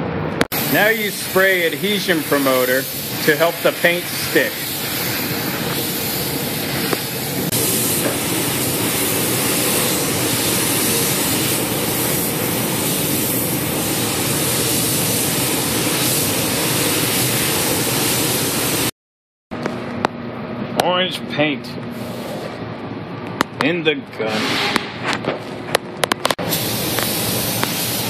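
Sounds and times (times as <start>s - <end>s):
air spray gun hissing: 0.6s - 18.9s, 26.4s - 28.0s.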